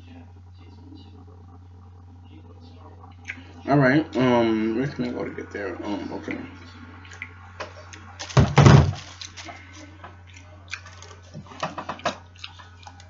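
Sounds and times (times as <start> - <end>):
steady low hum: 0.0 - 13.0
biting and chewing: 7.0 - 13.0.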